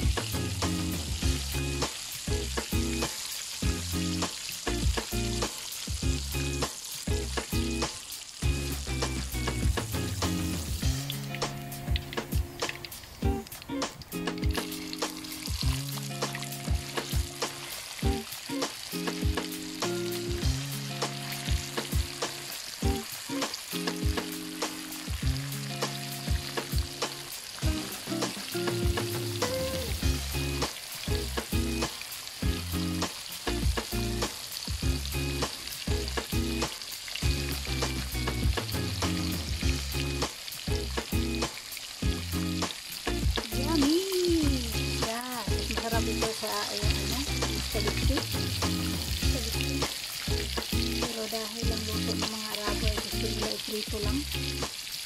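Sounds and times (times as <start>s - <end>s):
oil popping: 0.0s - 55.0s
oil sizzling around frying fish: 0.0s - 55.0s.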